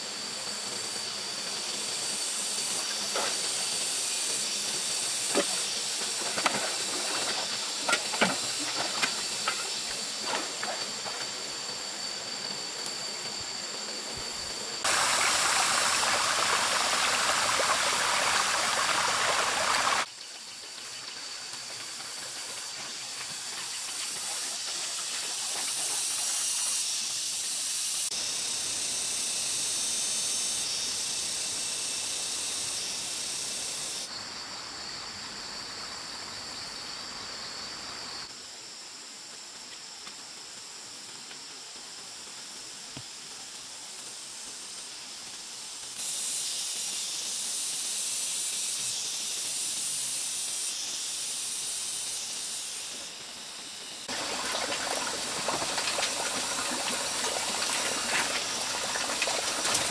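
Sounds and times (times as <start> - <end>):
water running in a ditch: 0.0 - 11.8, 14.1 - 28.2, 54.0 - 59.9
forest background noise: 0.0 - 59.9.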